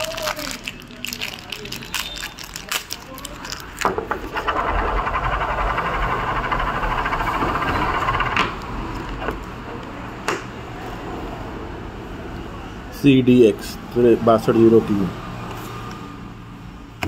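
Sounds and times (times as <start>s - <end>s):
ball bearing whirring rattle: 3.7s - 9.6s
bearing stopping click: 4.3s - 9.5s.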